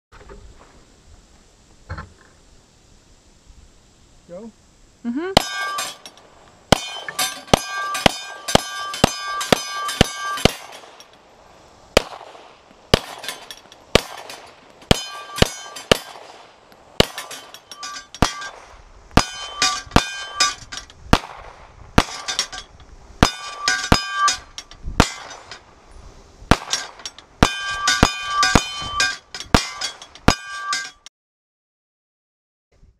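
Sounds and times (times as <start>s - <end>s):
steel plate ringing: 5.4s - 11.2s, 13.0s - 16.1s, 17.0s - 18.6s, 19.2s - 20.9s, 22.0s - 25.6s, 26.6s - 31.1s
pistol shots: 6.7s - 11.0s, 12.0s - 17.5s, 21.1s - 22.5s, 26.5s - 28.8s.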